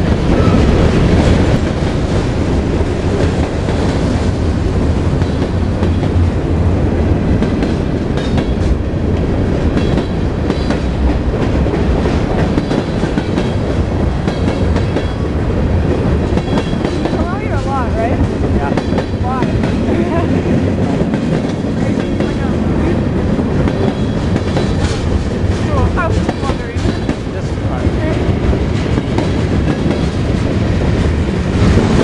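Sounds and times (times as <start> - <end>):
train wheels rumbling on rail: 0.0 - 32.0.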